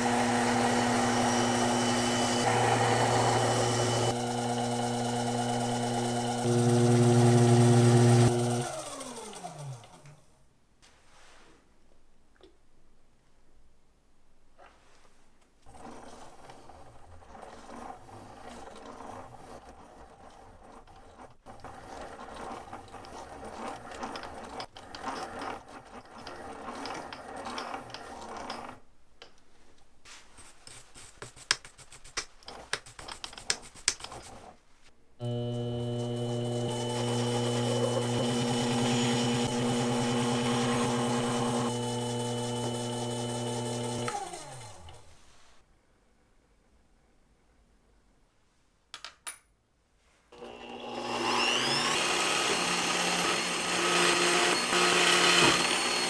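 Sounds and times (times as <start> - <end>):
lathe cutting metal: 0.0 - 8.6, 35.2 - 44.2, 50.4 - 56.0
lathe motor whining: 0.0 - 9.9, 35.2 - 45.0, 50.4 - 56.0.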